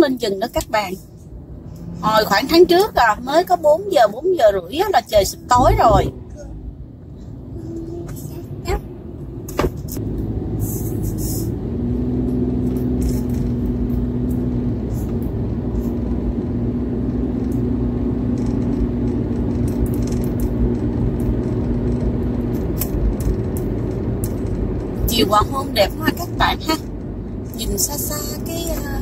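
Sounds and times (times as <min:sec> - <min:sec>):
engine and tyre rumble: 0:00.0 - 0:29.0
steady hum: 0:00.3 - 0:11.6.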